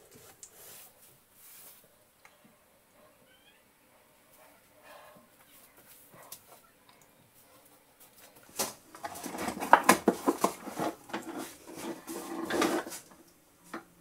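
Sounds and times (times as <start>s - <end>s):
scraping: 8.6s - 13.2s.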